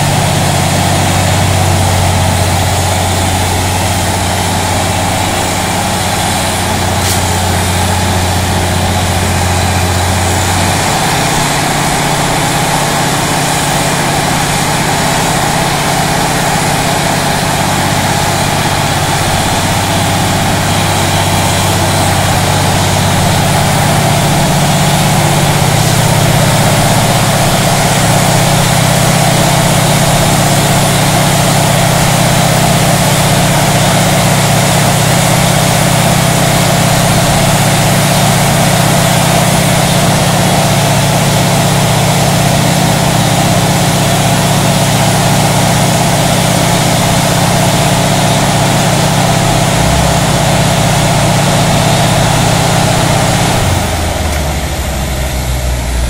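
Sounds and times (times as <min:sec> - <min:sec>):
diesel engine drone: 0:00.0 - 0:56.0
rushing air and water: 0:00.0 - 0:56.0.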